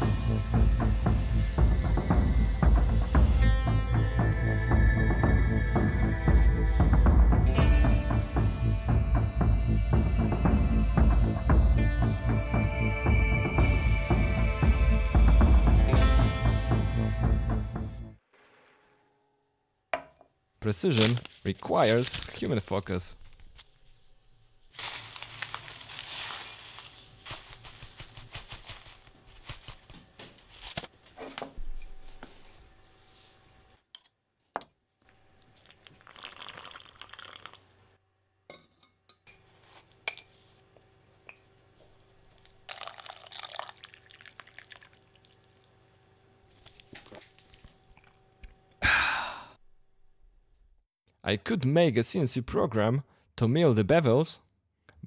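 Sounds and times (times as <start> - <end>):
paper bag rustling and crackling: 20.9 - 22.6, 24.7 - 30.9
water pouring into a gourd: 35.6 - 37.7, 42.4 - 45.9.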